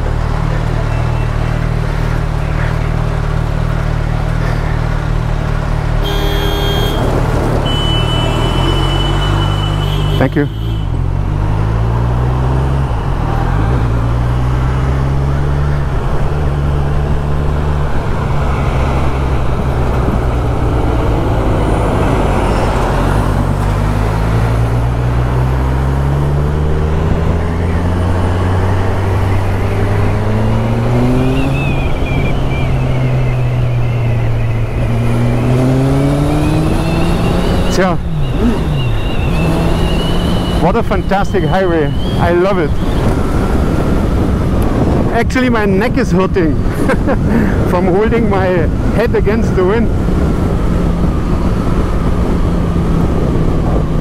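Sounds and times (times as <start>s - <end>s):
wind and road noise: 0.0s - 54.0s
motorcycle engine accelerating: 11.0s - 41.0s.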